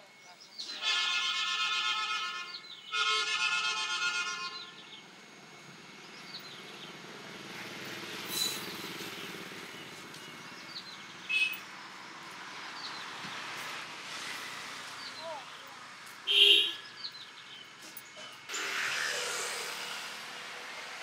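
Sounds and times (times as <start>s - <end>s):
vehicle horn blasts: 0.7s - 4.9s, 11.3s - 11.6s, 16.3s - 16.9s
motorbike passing: 5.8s - 17.1s.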